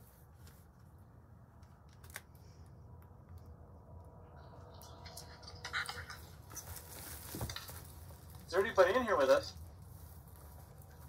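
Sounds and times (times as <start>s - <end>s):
handling and rustling: 6.3s - 8.6s, 9.6s - 11.0s.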